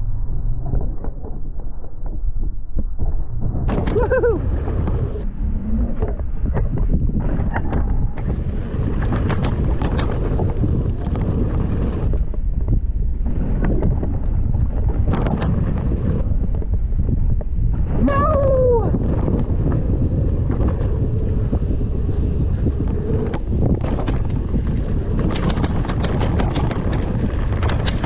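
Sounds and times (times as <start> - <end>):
wind rushing over microphone: 0.0 - 28.0
bike rattles and clicks: 6.0 - 18.2, 18.8 - 28.0.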